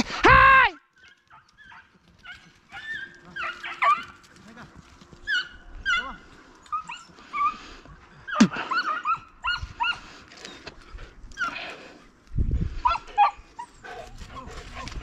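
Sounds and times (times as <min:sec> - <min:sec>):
dog yelping: 0:01.0 - 0:04.2, 0:05.2 - 0:07.6, 0:08.2 - 0:10.7, 0:12.8 - 0:13.9
hunting dogs yipping and baying: 0:01.0 - 0:04.4, 0:05.1 - 0:12.1, 0:12.8 - 0:15.0.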